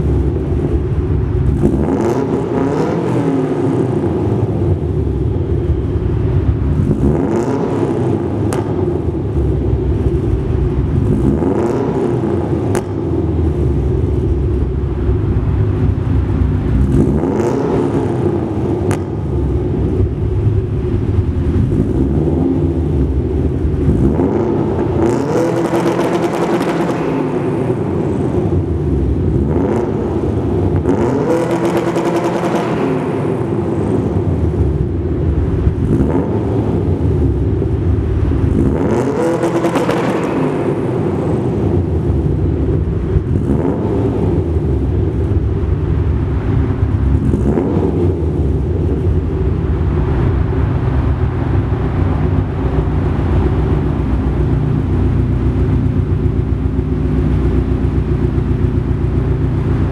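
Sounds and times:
car engine idling and revving: 0.0 - 59.9.

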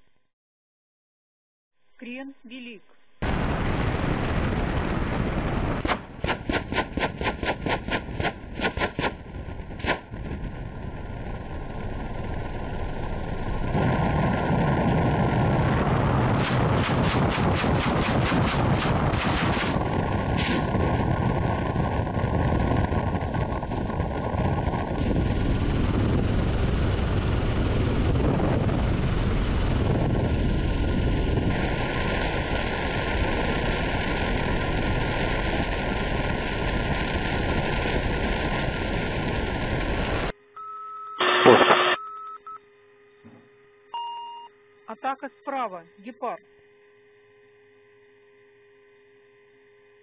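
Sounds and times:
helicopter rotors and engines: 3.2 - 40.3
rockets firing in rapid salvo: 3.2 - 40.3
cockpit electronic tones: 40.5 - 42.6, 43.9 - 45.5
short loud electronic blip: 41.2 - 42.5.

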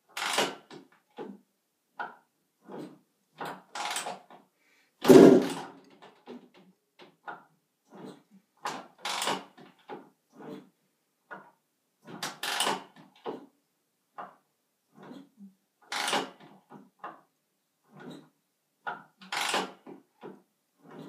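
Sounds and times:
motorcycle kickstarter kicks: 5.0 - 5.6.

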